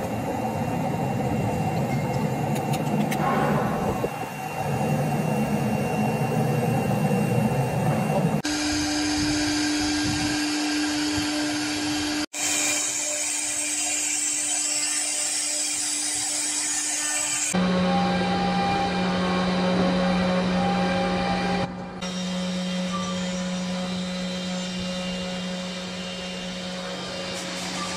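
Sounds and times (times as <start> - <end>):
rough machine noise: 0.0 - 27.9
router spindle whining and cutting: 8.3 - 27.9.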